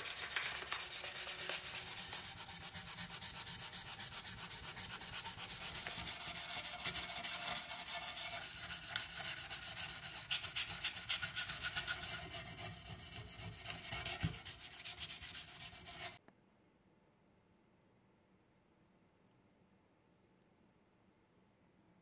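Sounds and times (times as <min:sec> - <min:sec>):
brush scrubbing cast iron: 0:00.0 - 0:16.2.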